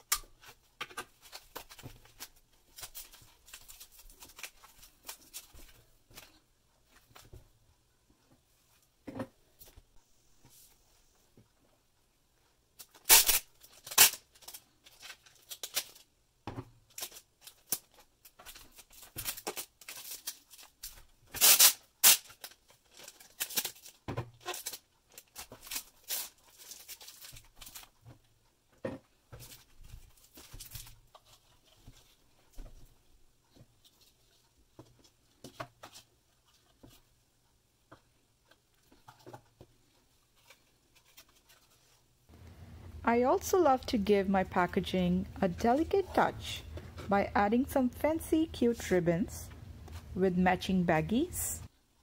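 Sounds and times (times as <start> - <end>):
foam wrapping crinkling: 1.1 - 6.4, 12.8 - 16.1, 16.9 - 28.0
packing tape tearing: 12.8 - 16.1, 16.9 - 27.9.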